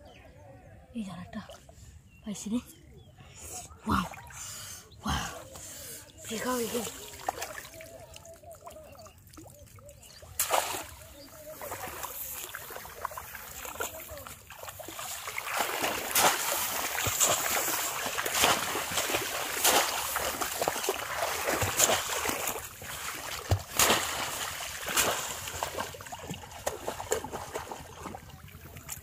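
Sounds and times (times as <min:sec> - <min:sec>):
water splashing and sloshing: 0:03.8 - 0:29.0.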